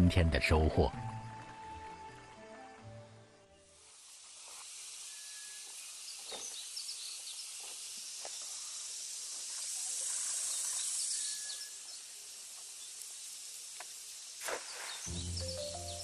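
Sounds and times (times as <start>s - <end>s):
river hiss: 3.6s - 16.0s
bird chirps: 15.1s - 16.0s.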